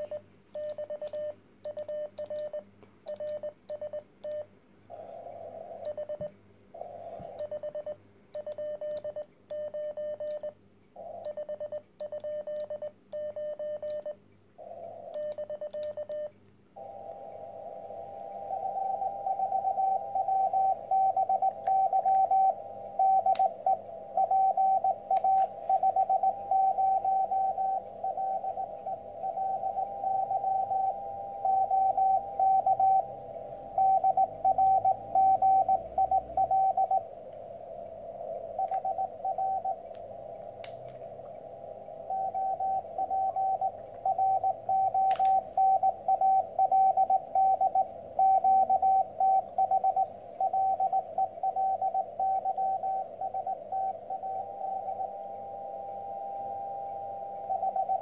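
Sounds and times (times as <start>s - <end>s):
receiver hiss: 0.0s - 58.0s
morse code tone: 5.3s - 37.1s, 38.2s - 40.3s, 41.5s - 58.0s.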